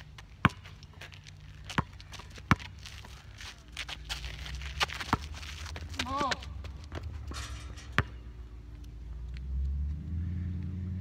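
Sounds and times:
basketball bouncing on asphalt: 0.0s - 8.8s.

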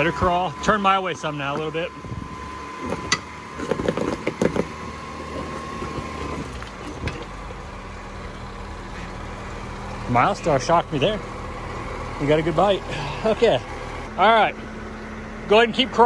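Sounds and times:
car engine running low: 0.0s - 16.0s.

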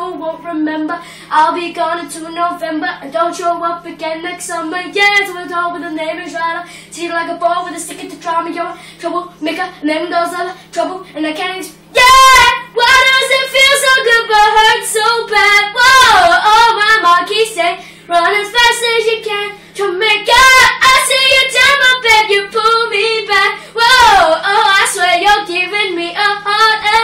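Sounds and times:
boy singing a cappella: 0.0s - 27.0s.

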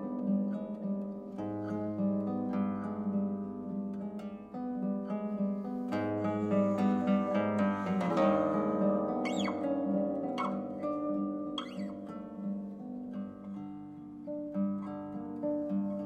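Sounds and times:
classical guitar playing: 0.0s - 16.0s
high guitar string squeaks: 6.2s - 11.0s, 11.6s - 12.0s.

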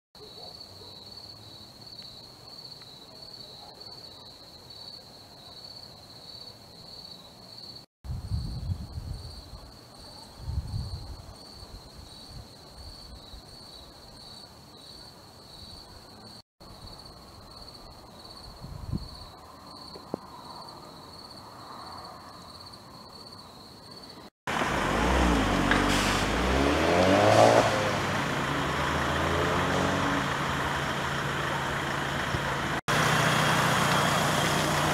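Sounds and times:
heavy vehicle engine running: 24.5s - 34.9s
rushing noise: 24.5s - 34.9s.

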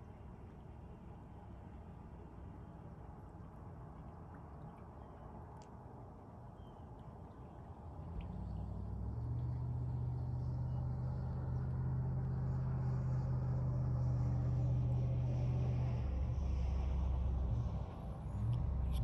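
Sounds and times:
vehicle engine running: 8.8s - 19.0s.

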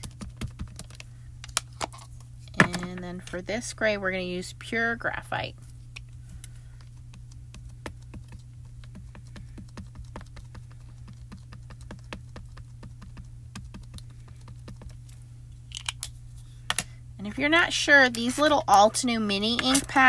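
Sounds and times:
low steady hum: 0.0s - 20.0s
ink pad tapping on stamp: 7.8s - 14.9s.

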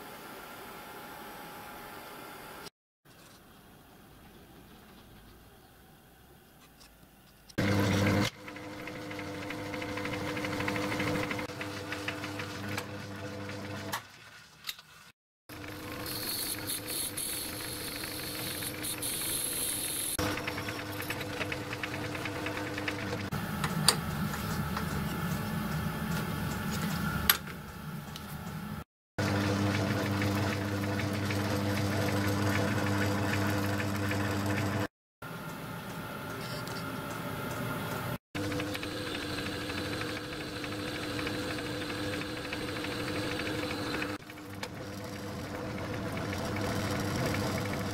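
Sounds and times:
faint workshop noise: 0.0s - 7.6s, 35.3s - 38.2s
lathe running with rattle: 7.6s - 13.9s, 15.5s - 23.3s, 29.2s - 34.9s, 38.4s - 47.9s.

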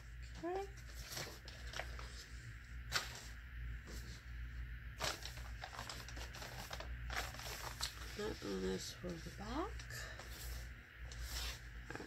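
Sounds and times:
paper rustling: 0.8s - 2.3s, 2.9s - 4.2s, 5.0s - 8.5s.

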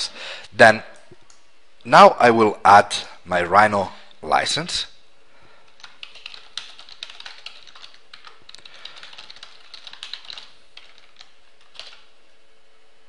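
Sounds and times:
computer keyboard typing: 5.7s - 12.1s.

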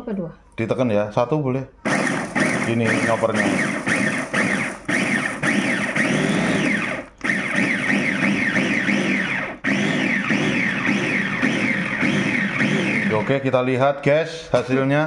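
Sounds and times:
food chopper motor whining: 1.8s - 13.8s.

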